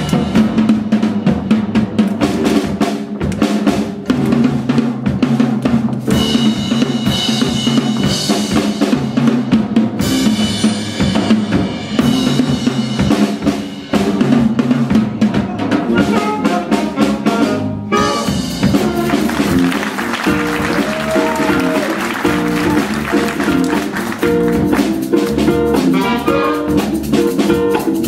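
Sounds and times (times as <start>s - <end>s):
drum kit strokes: 0.0s - 28.0s
jazz band playing: 0.0s - 28.0s
steady bass line: 15.8s - 28.0s.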